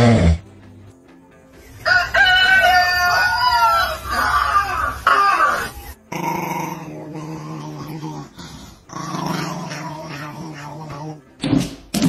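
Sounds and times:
rooster crowing: 1.8s - 5.7s.

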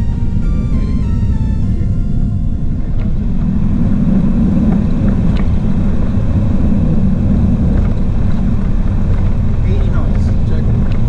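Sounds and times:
vehicle low rumble: 0.0s - 11.0s.

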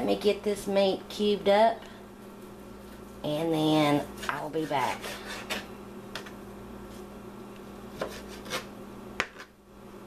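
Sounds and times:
steady low hum: 0.0s - 10.0s
knife cutting raw meat: 8.0s - 8.7s.

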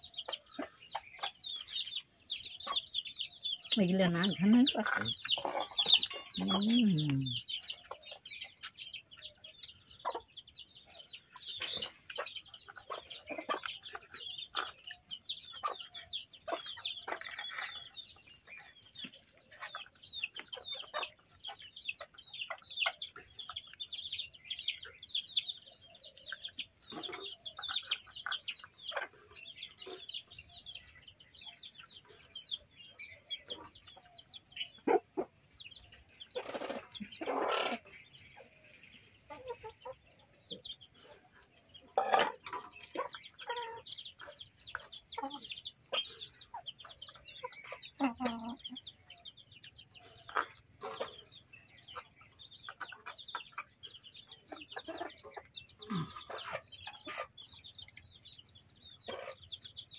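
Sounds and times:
chicks peeping: 0.0s - 59.9s.

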